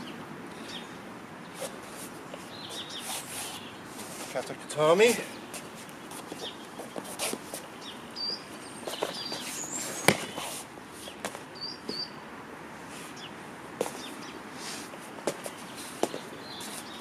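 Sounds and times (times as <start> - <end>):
small birds chirping: 0.0 - 12.2, 12.9 - 17.0
body slapping foam mat: 10.0 - 10.4.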